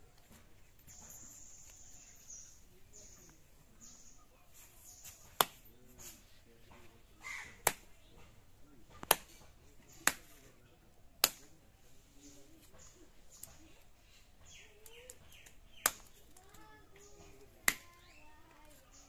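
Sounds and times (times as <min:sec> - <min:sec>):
soft scraping: 0:03.2 - 0:07.0.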